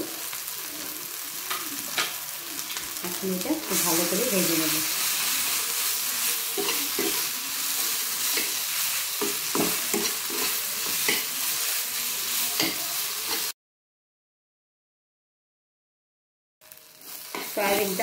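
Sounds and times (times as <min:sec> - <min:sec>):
paste sizzling in oil: 0:00.0 - 0:13.6, 0:16.6 - 0:18.0
metal spatula scraping a pan: 0:03.7 - 0:13.5.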